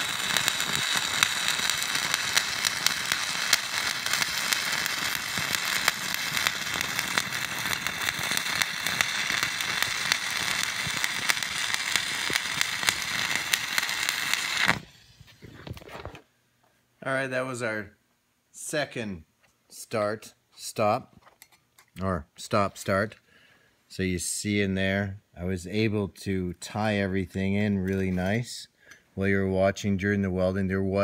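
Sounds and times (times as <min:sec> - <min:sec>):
welding arc crackling and popping: 0:00.0 - 0:16.2.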